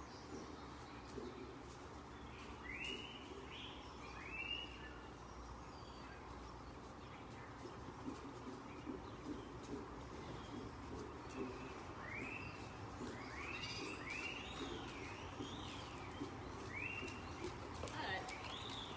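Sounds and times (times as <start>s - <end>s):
small bird chirping: 0.1s - 18.9s.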